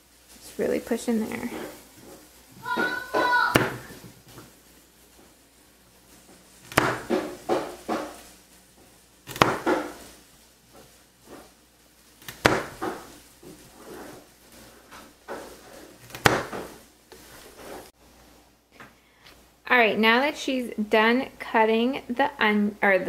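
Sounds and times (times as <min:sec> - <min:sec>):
knife cutting carrots: 0:09.2 - 0:10.0.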